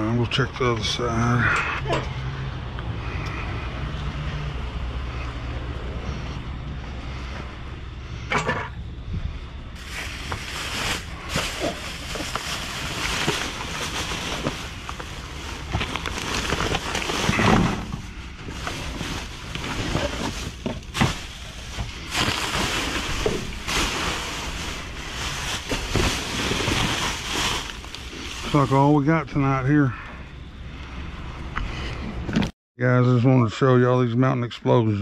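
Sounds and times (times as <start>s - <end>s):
trash bags rustling: 9.8s - 29.8s.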